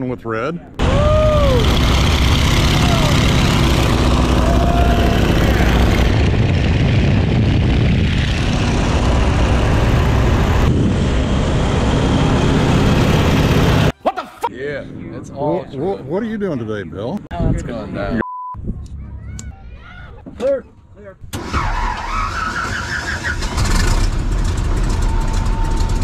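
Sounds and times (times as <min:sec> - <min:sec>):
wind rush: 0:00.8 - 0:13.9
radial engine and propeller: 0:23.9 - 0:26.0.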